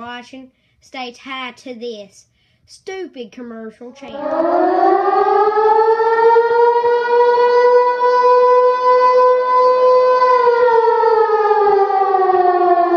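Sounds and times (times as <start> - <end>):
siren wailing: 3.9 - 12.9.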